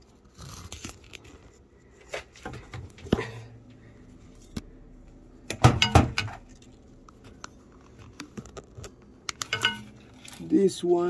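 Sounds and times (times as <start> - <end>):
hard objects knocking: 5.5 - 6.4, 9.4 - 10.0.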